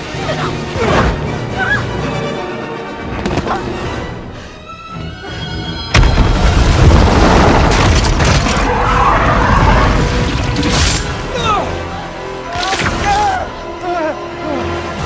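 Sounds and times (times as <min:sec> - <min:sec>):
orchestral music: 0:00.0 - 0:15.0
rock shattering: 0:06.0 - 0:11.3.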